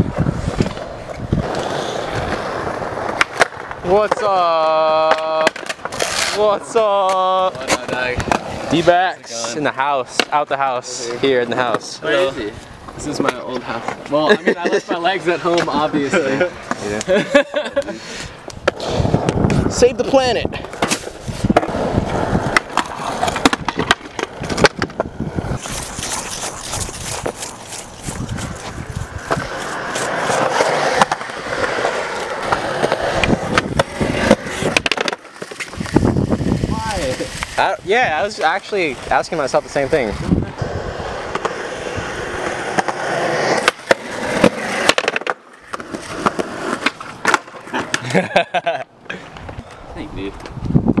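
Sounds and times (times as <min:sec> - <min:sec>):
skateboard wheels rolling on concrete: 0:00.0 - 0:51.0
skateboard clacks: 0:00.1 - 0:08.8, 0:20.6 - 0:25.2, 0:27.2 - 0:37.6, 0:41.0 - 0:48.4
wax scraping on concrete: 0:00.3 - 0:04.4, 0:05.0 - 0:48.2.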